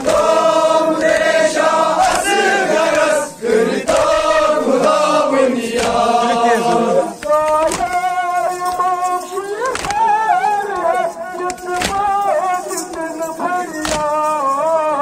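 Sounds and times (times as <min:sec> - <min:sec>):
voices chanting long notes: 0:00.0 - 0:07.9.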